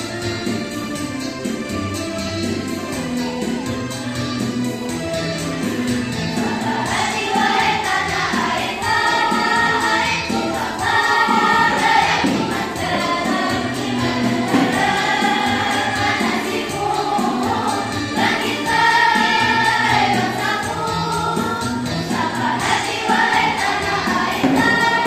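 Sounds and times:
girls' choir singing: 0:06.3 - 0:25.0.

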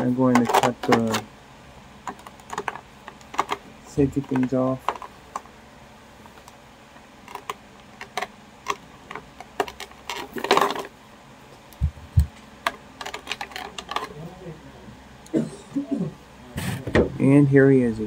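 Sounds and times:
plastic crinkling: 0:07.2 - 0:11.0, 0:12.6 - 0:14.3.

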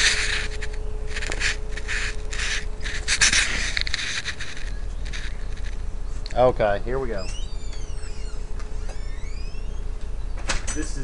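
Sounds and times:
handling noise on microphone: 0:00.0 - 0:06.4
faint steady hum: 0:00.0 - 0:11.0.

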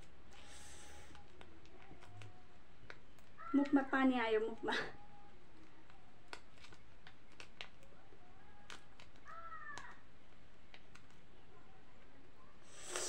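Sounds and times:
plastic sachet crinkling: 0:05.5 - 0:11.3.

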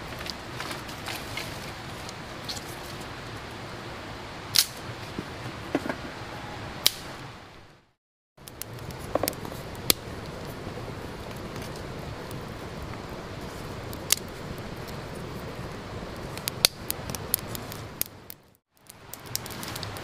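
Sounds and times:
outdoor background noise: 0:00.0 - 0:20.0
campfire snaps and clicks: 0:04.5 - 0:04.9, 0:06.8 - 0:07.1, 0:08.4 - 0:20.0.

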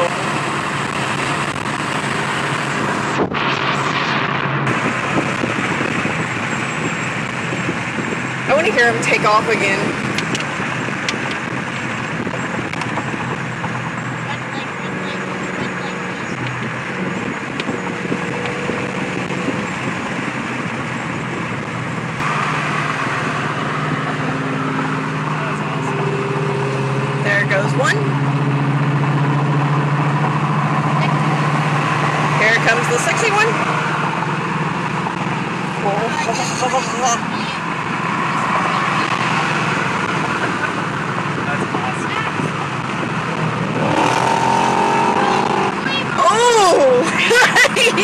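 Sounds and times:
car engine hum: 0:00.0 - 0:48.0
road noise: 0:00.0 - 0:48.0
wind noise on microphone: 0:00.8 - 0:14.0, 0:15.2 - 0:22.3, 0:41.6 - 0:48.0.

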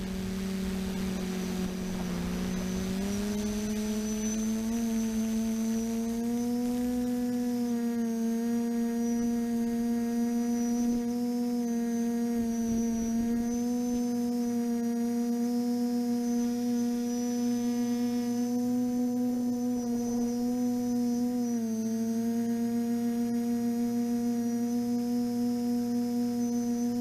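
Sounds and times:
drone motors humming: 0:00.0 - 0:27.0.

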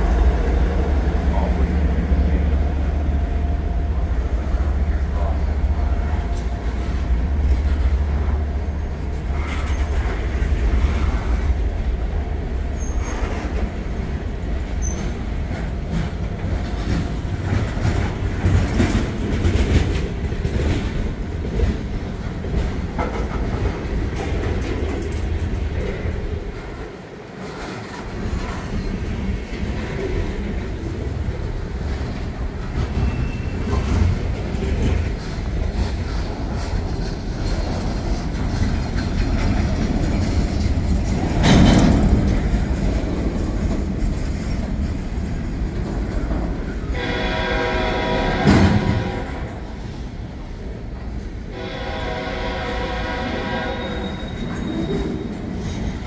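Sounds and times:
wheels clacking over rail joints: 0:00.0 - 0:49.9
train rolling past: 0:00.0 - 0:56.0
faint wheel squeals: 0:32.9 - 0:33.9, 0:53.7 - 0:55.5.

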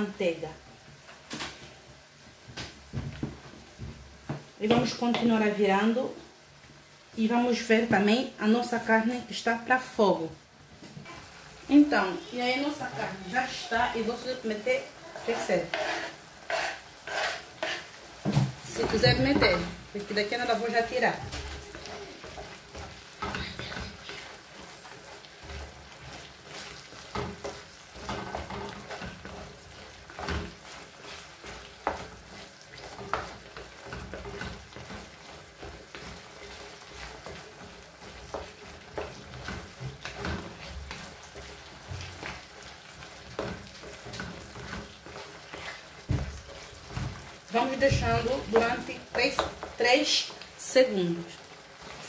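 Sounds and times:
meat sizzling in a frying pan: 0:00.0 - 0:52.0
wooden spatula scraping a pan: 0:10.6 - 0:52.0.

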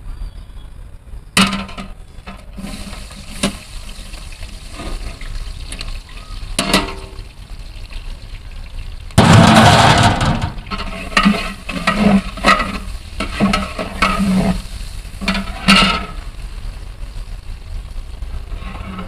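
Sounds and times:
food sizzling in hot oil: 0:02.1 - 0:19.0
ladle scraping a pot: 0:04.7 - 0:05.3, 0:10.6 - 0:16.2, 0:18.5 - 0:19.0.

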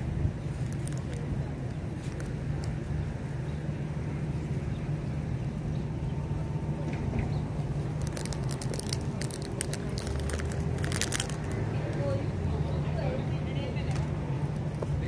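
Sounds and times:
steady low rumble: 0:00.0 - 0:15.0
crisp bag crinkling: 0:00.5 - 0:01.2, 0:07.9 - 0:11.7.

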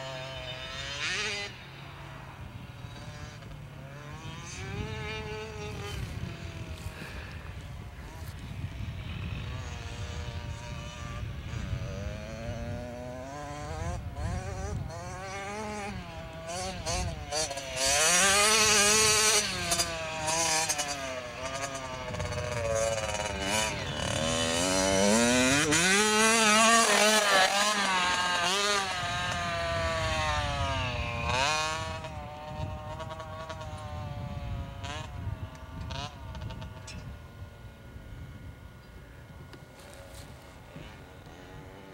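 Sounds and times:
dirt bike engine revving: 0:00.0 - 0:41.9.

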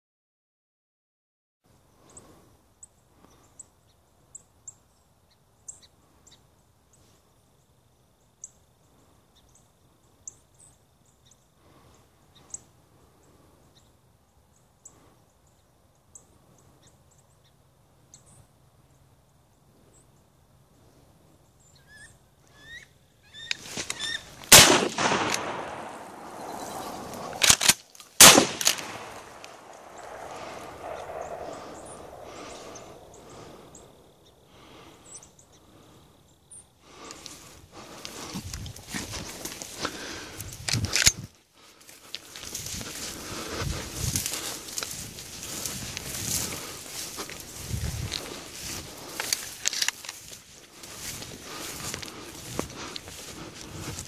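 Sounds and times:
faint chirps and ticks: 0:01.8 - 0:20.6, 0:32.9 - 0:38.8
shotgun shots: 0:24.5 - 0:33.1.

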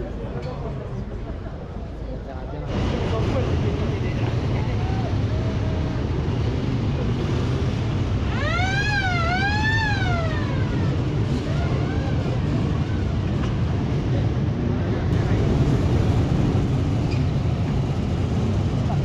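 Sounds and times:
low rumble of passing vehicles: 0:00.0 - 0:19.0
siren wailing: 0:08.2 - 0:13.1.

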